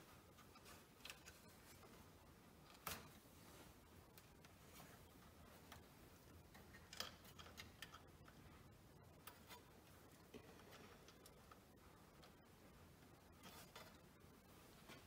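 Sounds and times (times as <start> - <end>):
small wire clicks: 5.6 - 8.5.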